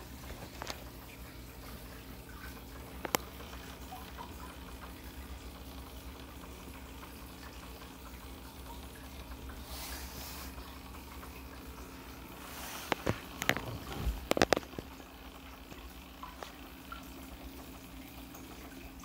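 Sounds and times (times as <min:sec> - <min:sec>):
aquarium water trickling: 0:00.0 - 0:19.0
low pump hum: 0:00.0 - 0:19.0.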